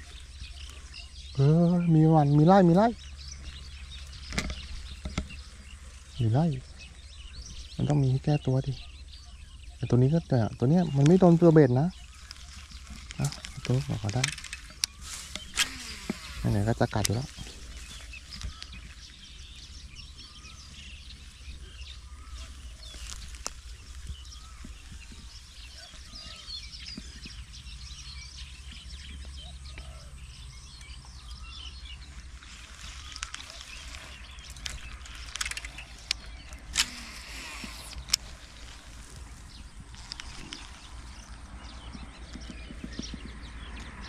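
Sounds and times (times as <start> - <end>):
small birds chirping: 0.0 - 44.0
steady low rumble: 0.0 - 44.0
sharp clicks or snaps: 34.5 - 38.3.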